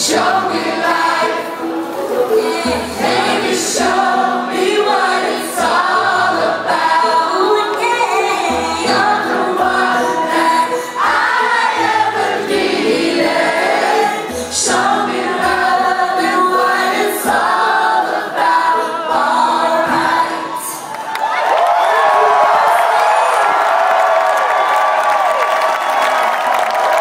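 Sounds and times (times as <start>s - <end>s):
keyboards: 0.0s - 27.0s
woman singing into a microphone: 3.8s - 12.1s.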